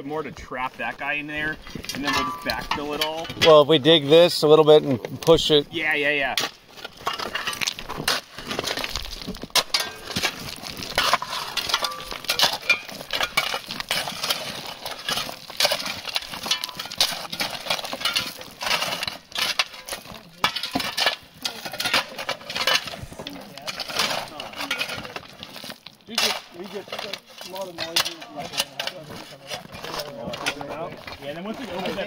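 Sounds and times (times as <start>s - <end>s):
loose rocks clattering: 0.8s - 32.0s
metal bars scraping on stone: 1.8s - 3.7s, 5.3s - 32.0s.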